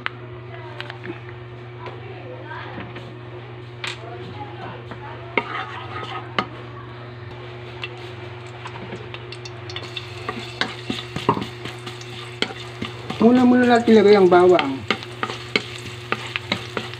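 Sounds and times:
steady low hum: 0.0 - 16.9
spatula scraping metal wok: 5.4 - 6.5
garlic sizzling in oil: 7.5 - 16.9.

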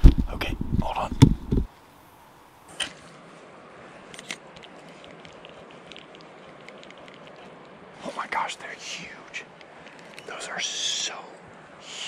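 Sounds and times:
camera handling rumble: 0.0 - 1.7, 4.1 - 7.8, 9.6 - 10.3.

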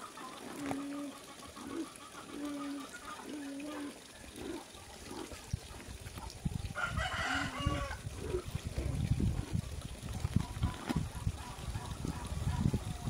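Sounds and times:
rooster crowing: 6.8 - 8.0
drawn-out chicken call: 6.8 - 8.4.

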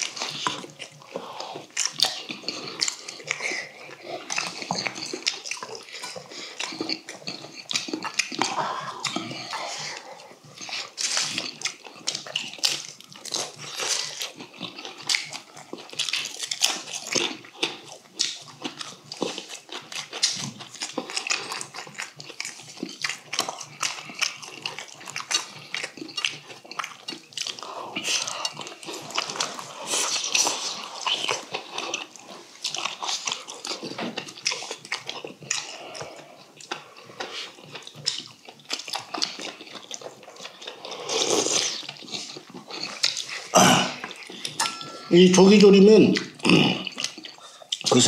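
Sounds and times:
slurping and chewing: 0.0 - 48.0
utensils clinking on steel bowls: 44.4 - 45.9.

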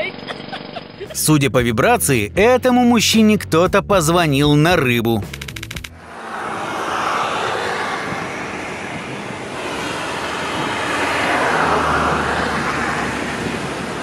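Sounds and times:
low engine hum: 5.9 - 14.0.

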